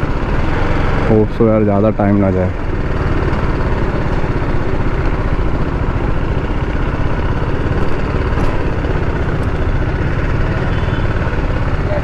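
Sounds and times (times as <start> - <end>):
motorcycle engine running slowly: 2.5 - 12.0.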